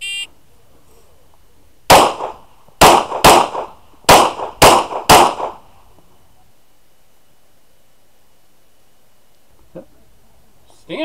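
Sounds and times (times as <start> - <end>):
pistol shots with echo: 1.9 - 5.6.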